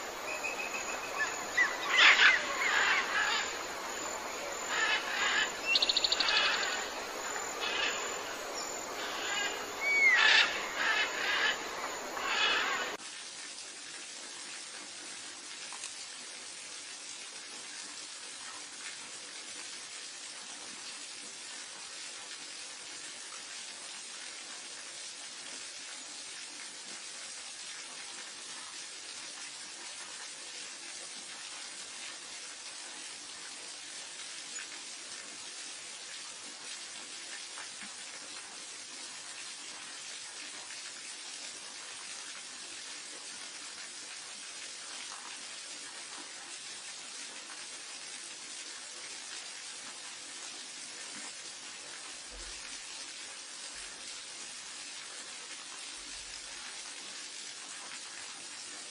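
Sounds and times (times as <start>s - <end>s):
birds chirping and calling: 0.0s - 13.0s
faint steady hiss: 0.0s - 58.9s
bird whistle rising and falling: 0.1s - 13.0s.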